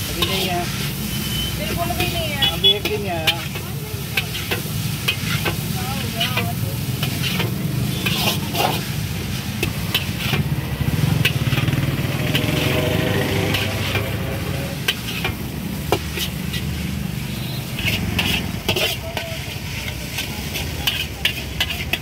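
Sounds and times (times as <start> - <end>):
metal spatula scraping a wok: 0.0 - 22.0
noodles sizzling in a wok: 0.0 - 22.0
gas burner rushing: 4.4 - 21.9.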